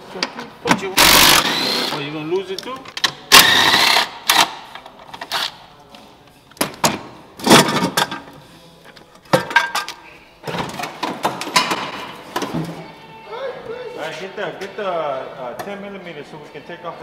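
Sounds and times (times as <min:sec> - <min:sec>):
cordless ratchet bursts: 0:03.3 - 0:04.5.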